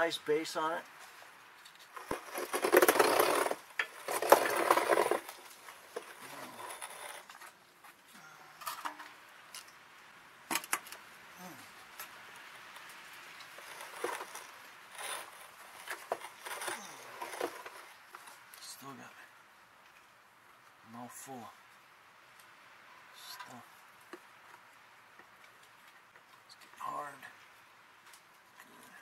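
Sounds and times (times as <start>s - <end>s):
hand tool clicking and scraping: 1.6s - 7.6s, 13.3s - 18.4s.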